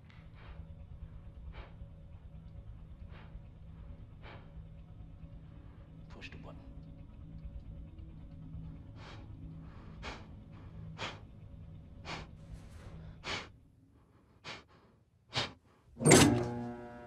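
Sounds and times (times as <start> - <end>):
man breathing hard: 0.0 - 6.0, 8.8 - 16.0.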